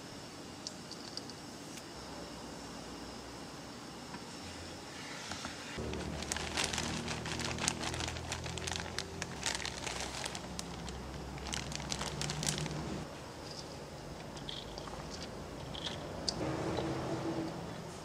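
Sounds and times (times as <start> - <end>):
steady low hum: 0.0 - 18.0
plastic bag crinkling: 5.8 - 13.1.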